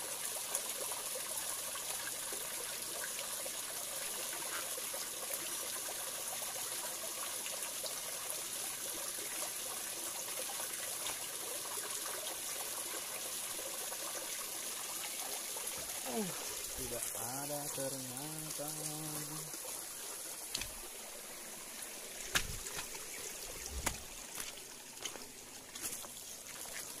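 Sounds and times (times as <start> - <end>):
stream water splashing into pool: 0.0 - 27.0.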